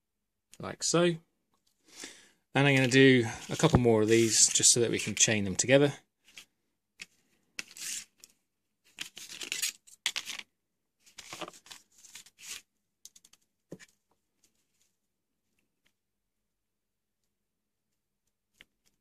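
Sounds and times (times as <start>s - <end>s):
scraping crinkling of led strips: 2.6s - 5.3s.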